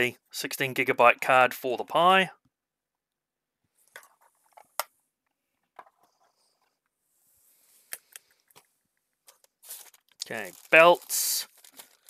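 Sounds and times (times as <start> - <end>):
soft plastic rustling: 6.0 - 12.0.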